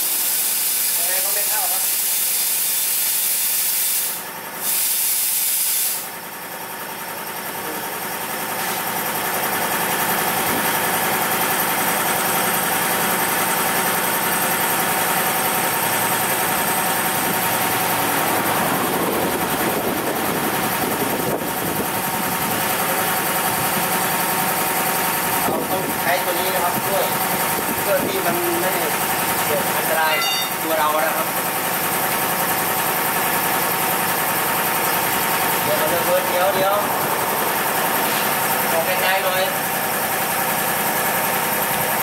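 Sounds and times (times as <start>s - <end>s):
compressed air hissing: 0.0s - 6.1s
machine drone with whine: 7.1s - 40.1s.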